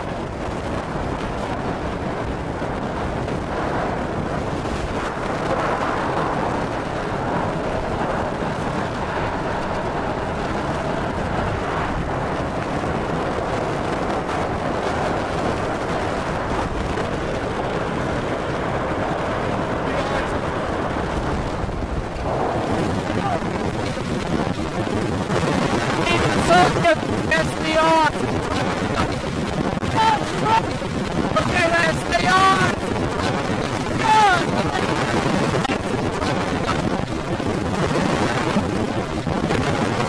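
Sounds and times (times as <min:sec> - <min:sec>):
driving rain: 0:00.0 - 0:40.0
wind buffeting microphone: 0:00.0 - 0:40.0.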